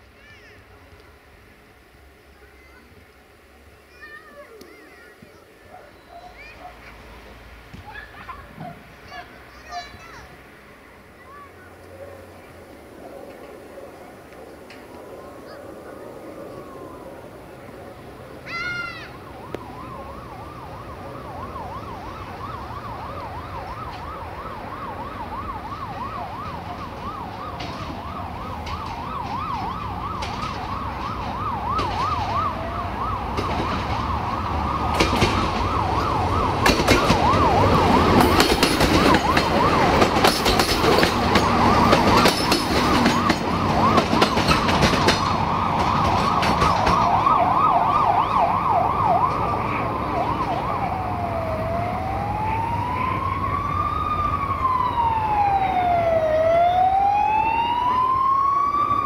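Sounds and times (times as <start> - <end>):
diesel train approaching: 0.0 - 59.0
emergency siren wailing and yelping: 12.8 - 59.0
train wheels clicking over rail joints: 26.5 - 32.6, 33.3 - 47.4.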